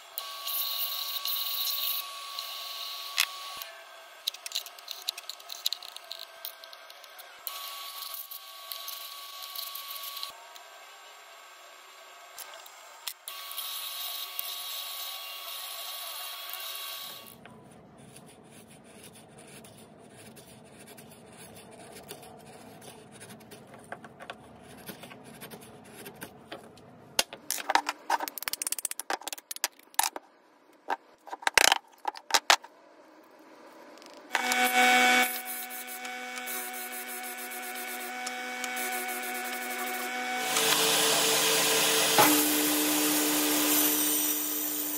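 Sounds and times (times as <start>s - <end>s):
disc sander humming: 34.3s - 44.9s
sharpening wheel grinding chisel: 34.4s - 41.0s.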